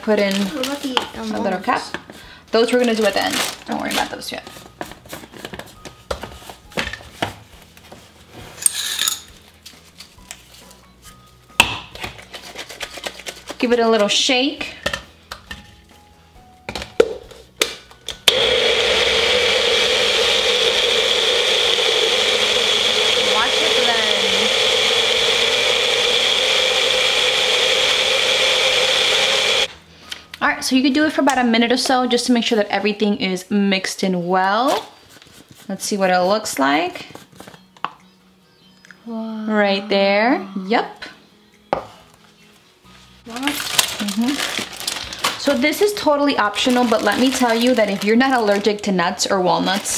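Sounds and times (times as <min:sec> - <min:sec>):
blender motor whining: 0:18.3 - 0:29.7.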